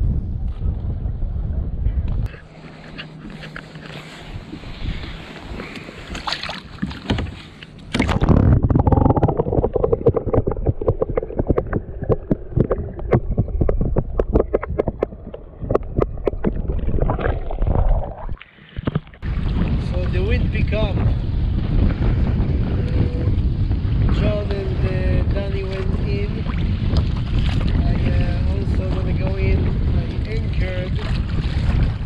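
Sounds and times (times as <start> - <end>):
muffled underwater rumble: 0.0 - 6.3, 7.9 - 32.0
wind: 0.0 - 32.0
water washing around kayak: 2.2 - 32.0
water clicks and gurgles: 5.4 - 20.8, 25.4 - 32.0.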